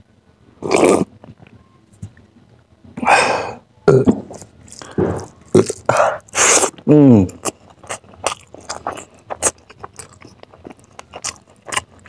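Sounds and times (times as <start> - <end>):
mouth sounds: 3.0 - 8.0.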